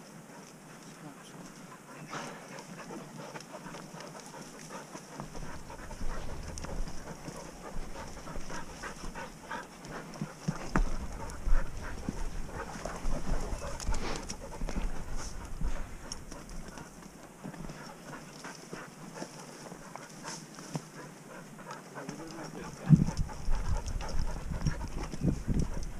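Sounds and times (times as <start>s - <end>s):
dog panting: 0.0s - 25.9s
footsteps crunching on stones: 2.9s - 21.0s
wind buffeting microphone: 5.2s - 9.6s, 10.5s - 16.8s, 22.5s - 25.9s.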